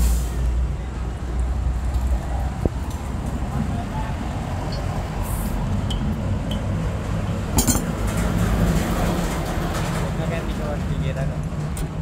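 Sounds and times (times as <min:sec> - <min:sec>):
light metal clinks: 0:07.6 - 0:07.9.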